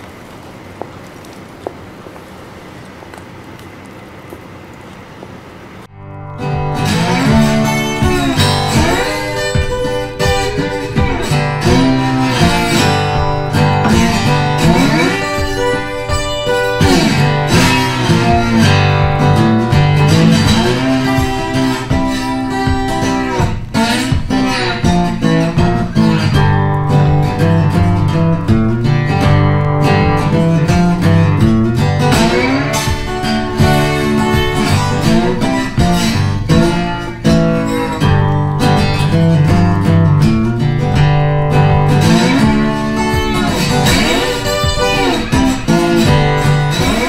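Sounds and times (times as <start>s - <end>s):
acoustic guitar strummed and plucked: 5.6s - 47.0s.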